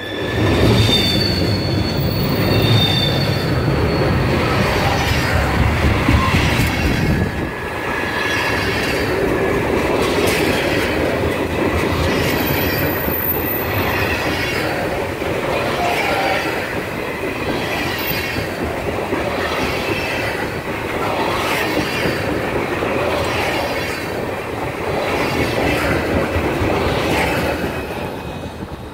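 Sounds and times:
train wheel squeal: 0.0 - 7.4, 8.0 - 9.1, 12.0 - 20.6
train wheels clacking over rail joints: 4.9 - 28.9.

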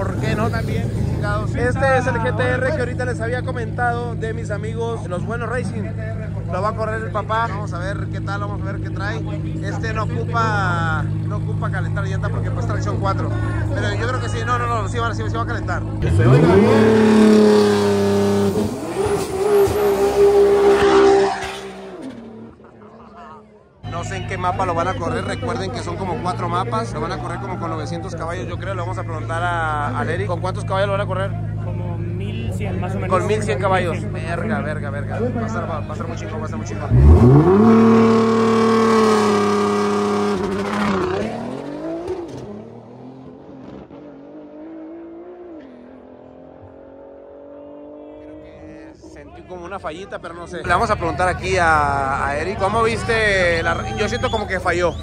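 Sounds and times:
car engine revving high: 15.4 - 22.8, 36.7 - 48.4
tyre squeal: 18.6 - 22.3, 53.7 - 55.0.

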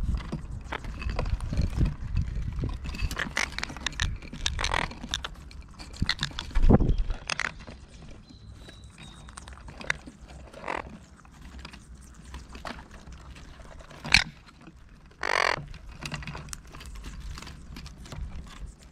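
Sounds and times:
parakeets pecking at fat: 0.0 - 18.9
beak clicks: 3.0 - 14.4
parakeet squawk: 15.2 - 15.6.

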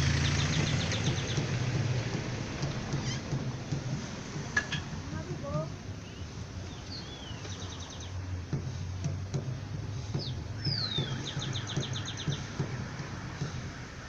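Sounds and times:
small birds whistling calls: 0.0 - 1.6, 2.9 - 3.4, 5.9 - 8.4, 10.0 - 12.7
distant drums thumping: 0.0 - 14.0.

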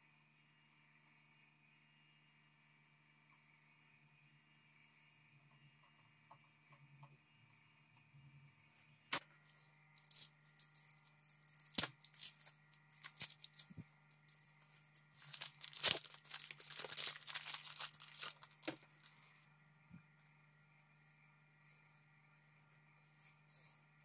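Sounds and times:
plastic packaging rustling: 10.0 - 19.3.

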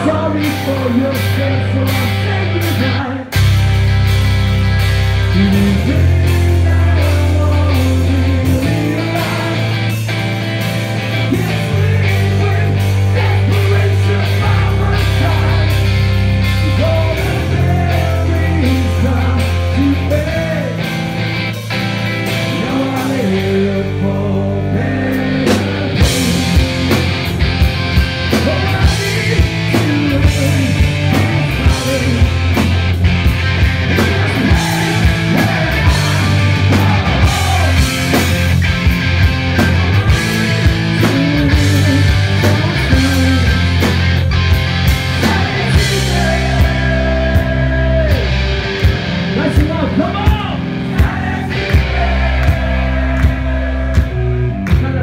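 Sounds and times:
person singing: 0.0 - 3.4, 5.3 - 10.0, 11.2 - 21.0, 22.2 - 27.1, 28.3 - 32.7, 33.8 - 38.4, 39.8 - 43.9, 45.0 - 48.6
bass notes: 0.0 - 55.0
electric guitars: 0.0 - 55.0
fast drum beat: 25.5 - 47.8.

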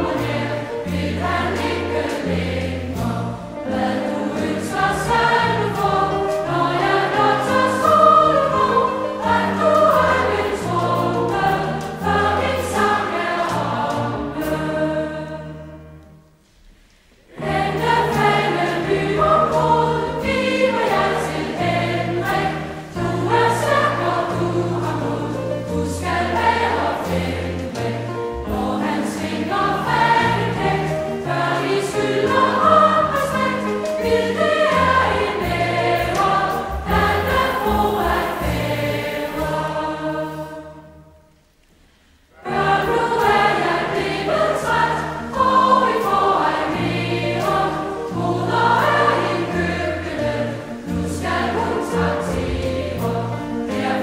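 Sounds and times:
choir singing with accompaniment: 0.0 - 54.0.

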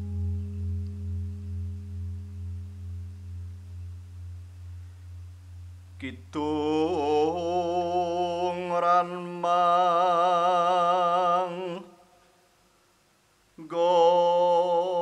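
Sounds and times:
low pulsing gong hum: 0.0 - 7.2
solo voice singing: 6.0 - 12.2, 13.6 - 15.0.

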